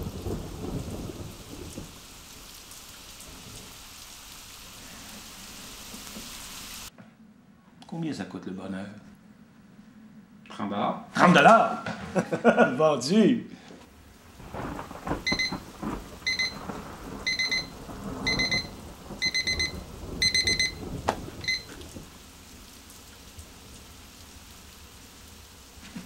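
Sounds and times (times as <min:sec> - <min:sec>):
faint steady hiss: 0:00.0 - 0:26.0
alarm clock beeping: 0:15.3 - 0:15.6, 0:16.3 - 0:16.6, 0:17.3 - 0:20.8, 0:21.4 - 0:21.7.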